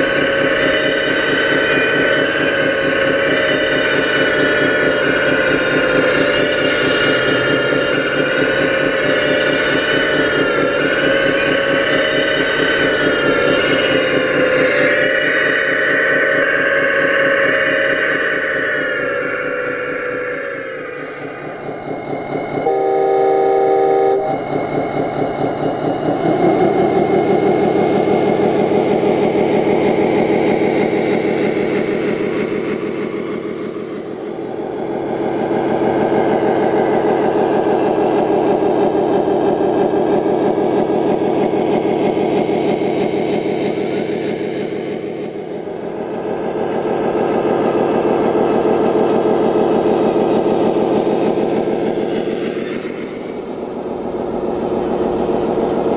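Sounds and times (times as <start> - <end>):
simulated diesel truck engine revving: 2.2 - 19.8
multi-tone air horn blast: 22.6 - 24.4.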